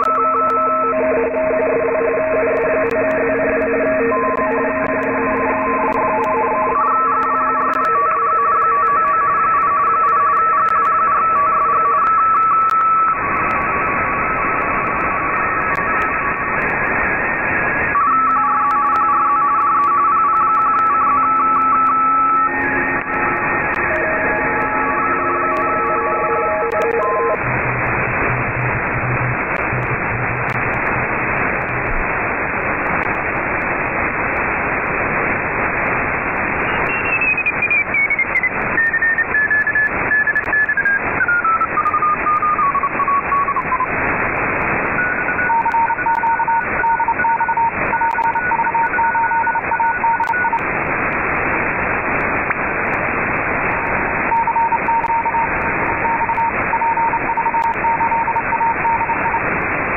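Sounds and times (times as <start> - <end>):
radio receiver hiss: 0.0 - 59.9.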